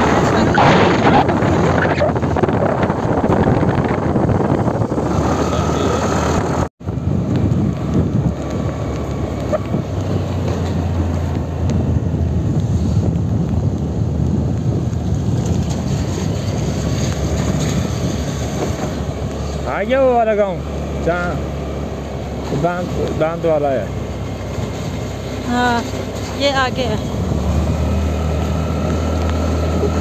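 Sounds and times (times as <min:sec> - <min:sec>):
wind buffeting microphone: 0:00.0 - 0:19.7.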